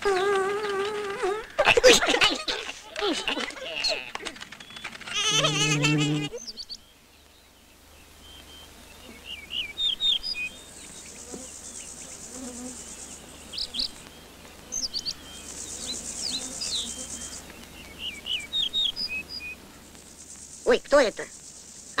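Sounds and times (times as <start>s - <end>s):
insect buzzing trill: 0.0s - 1.6s, 5.1s - 6.5s, 10.0s - 14.0s, 14.6s - 17.4s
small birds twittering: 0.0s - 22.0s.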